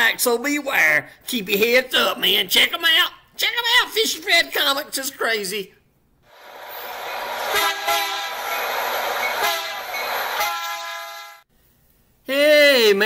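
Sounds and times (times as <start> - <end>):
train rumbling: 6.3 - 11.4
train horn blasts: 7.4 - 8.7, 9.3 - 11.5.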